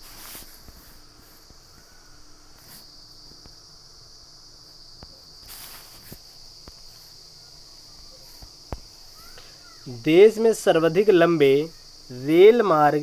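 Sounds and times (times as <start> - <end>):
insect chorus drone: 0.0 - 13.0
soft clicks and rustles: 4.7 - 7.3.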